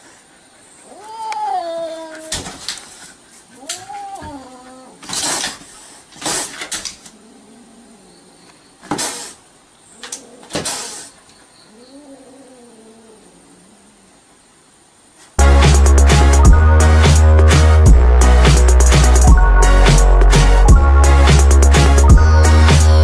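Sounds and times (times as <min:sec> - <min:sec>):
cat yowling: 0:00.9 - 0:02.4, 0:03.6 - 0:05.0
cat hissing: 0:03.4 - 0:08.1, 0:08.8 - 0:14.0.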